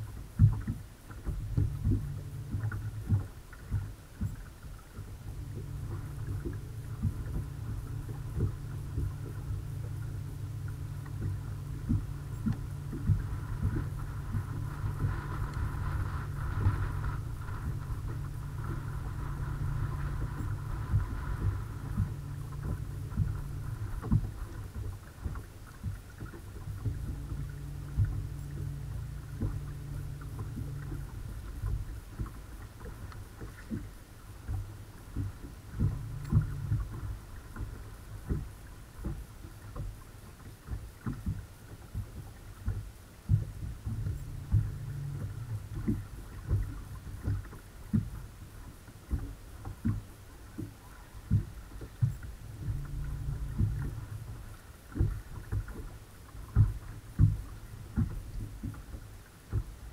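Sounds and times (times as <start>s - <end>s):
faint motor whine: 0.0s - 59.9s
electric trolling motor humming: 1.3s - 39.7s, 43.6s - 48.0s, 50.4s - 59.0s
low knocks and slaps: 49.1s - 59.8s.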